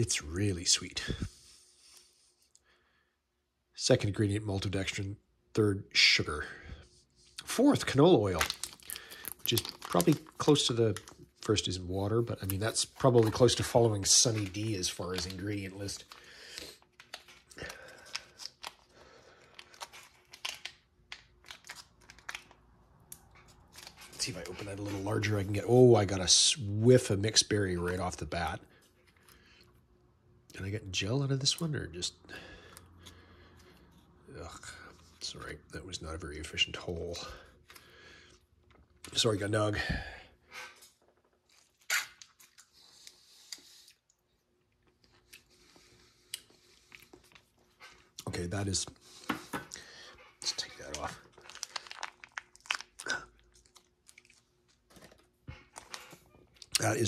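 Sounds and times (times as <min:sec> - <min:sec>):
foil packet crinkling: 0:07.6 - 0:26.4, 0:50.4 - 0:55.1.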